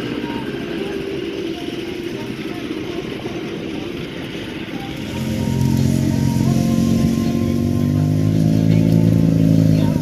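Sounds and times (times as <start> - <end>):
snowmobile engine running: 4.8 - 10.0.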